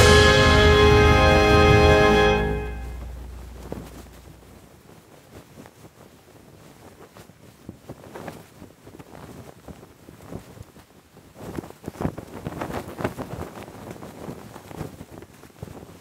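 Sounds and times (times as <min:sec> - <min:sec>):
anthem music: 0:00.0 - 0:04.5
flag flapping in wind: 0:03.4 - 0:16.0.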